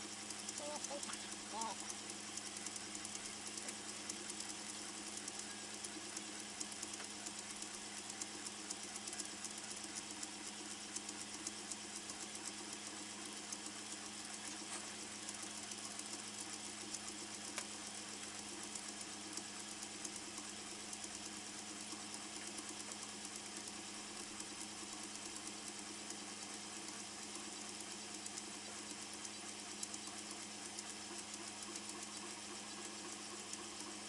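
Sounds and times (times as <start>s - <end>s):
fast light ticking: 0.0s - 34.0s
laser engraver humming: 0.0s - 34.0s.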